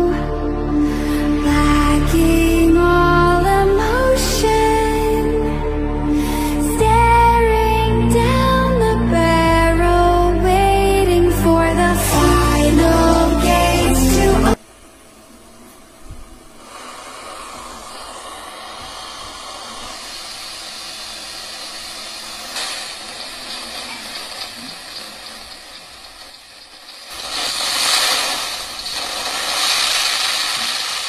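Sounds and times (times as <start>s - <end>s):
fm radio static hiss: 12.2s - 31.0s.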